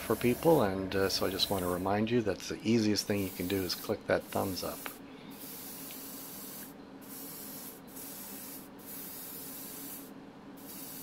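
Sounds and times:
low steady hum: 0.0 - 7.2
airbrush spraying hiss: 0.2 - 1.9, 3.0 - 11.0.

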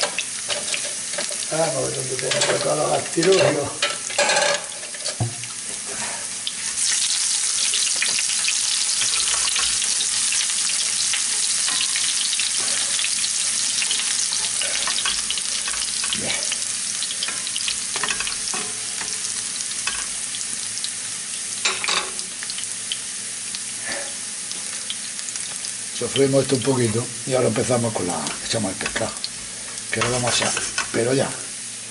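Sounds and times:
garlic sizzling in hot oil: 0.0 - 31.9
spatula scraping and knocking pan: 2.2 - 6.2, 7.6 - 16.6, 17.2 - 20.2, 28.2 - 31.0.

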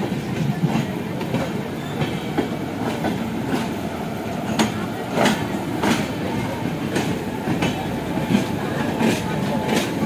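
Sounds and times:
train rumbling past: 0.0 - 10.0
train wheels clacking on rail joints: 0.0 - 10.0.

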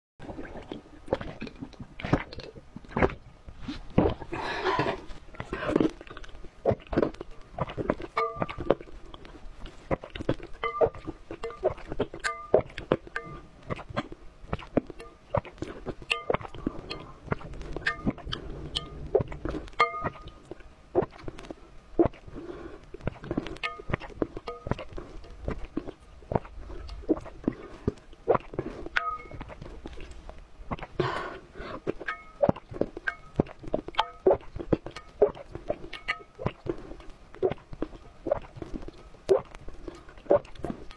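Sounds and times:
wet slurping and swallowing: 0.2 - 40.9
lip smacks: 0.4 - 31.0, 31.6 - 40.9
metal spoon clinking on bowl: 8.2 - 8.7, 19.8 - 20.2
wet slurping and lip smacks: 22.9 - 31.0, 31.8 - 40.9.

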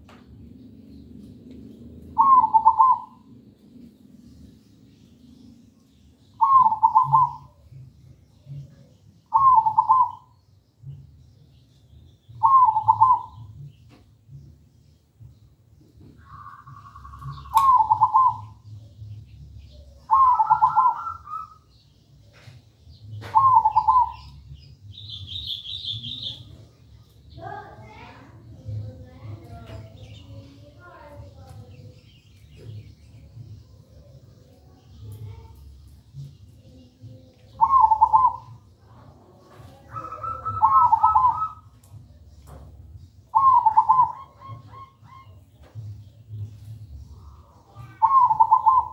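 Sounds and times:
small bird chirping: 0.4 - 48.9
dove cooing: 2.1 - 3.3, 6.4 - 7.6, 9.3 - 10.3, 12.3 - 13.7, 16.2 - 18.7, 19.8 - 21.6, 23.2 - 24.4, 37.6 - 41.7, 43.3 - 45.9, 47.7 - 48.9.

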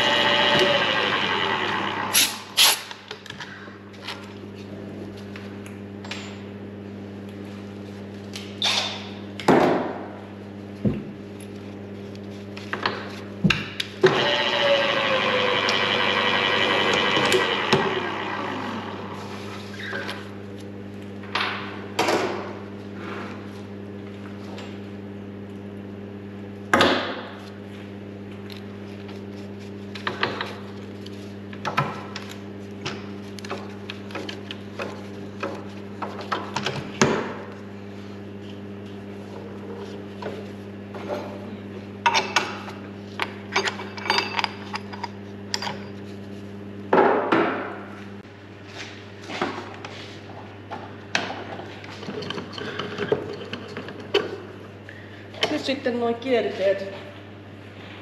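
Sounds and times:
motor running and winding down: 0.0 - 2.6, 14.0 - 19.9.

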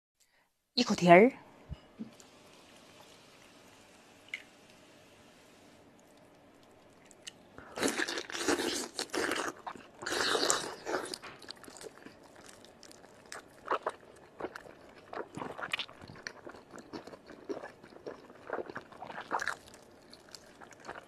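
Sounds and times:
chewing and mouth sounds: 6.0 - 21.0.

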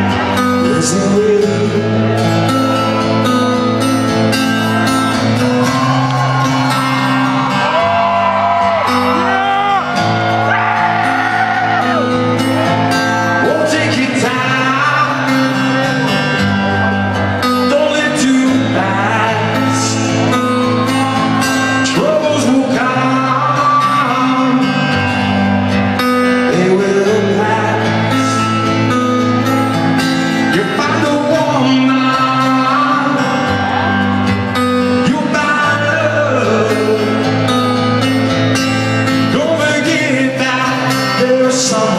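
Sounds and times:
man singing: 0.0 - 3.2, 10.6 - 29.6, 30.2 - 38.0, 39.0 - 41.9
rock band playing: 0.0 - 41.9.

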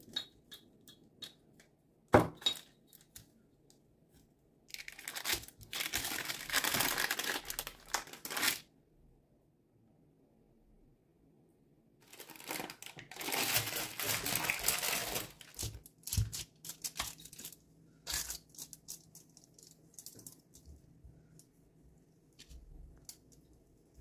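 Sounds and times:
parchment paper crinkling: 4.7 - 8.6, 12.0 - 20.8.

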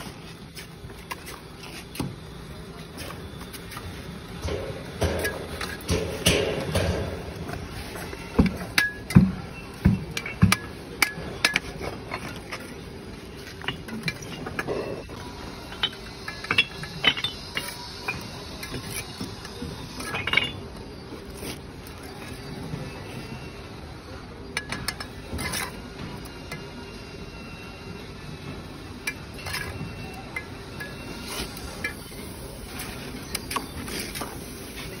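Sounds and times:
trowel clinking on bricks: 8.0 - 22.5, 29.0 - 34.4.

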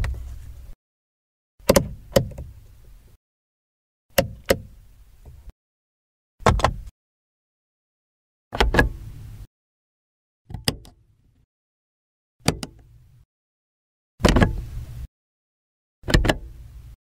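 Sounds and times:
car door latch clicking: 1.6 - 2.5, 4.2 - 5.4, 6.4 - 6.8, 10.5 - 11.0, 12.4 - 12.8, 14.2 - 14.6, 16.1 - 16.5.

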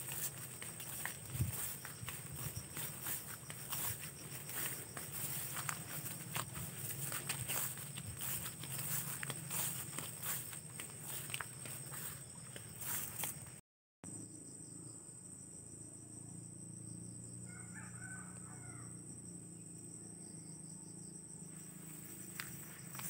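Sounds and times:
footsteps through grass: 0.0 - 13.6, 22.0 - 23.0
insects chirring: 0.0 - 23.0
rooster crowing faintly: 17.4 - 19.0.

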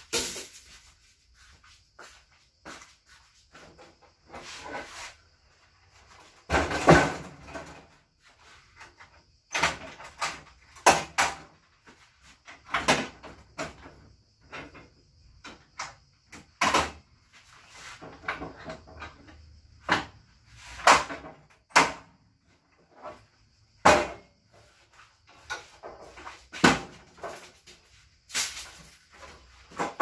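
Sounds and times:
objects knocking and clunking: 6.0 - 30.0.

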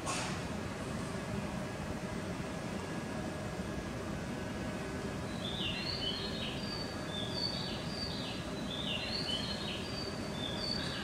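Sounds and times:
recorded birdsong chirps: 5.2 - 11.0.

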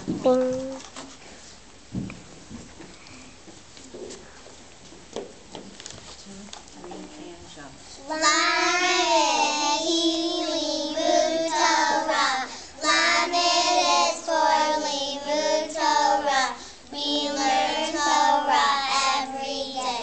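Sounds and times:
girls singing together: 8.0 - 20.0.

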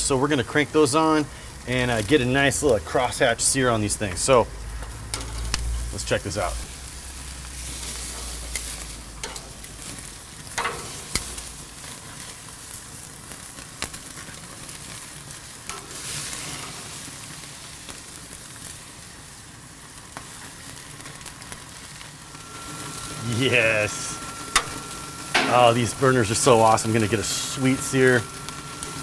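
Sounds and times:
steaks sizzling on grill: 0.0 - 29.0
metal tongs clicking: 8.5 - 9.5.

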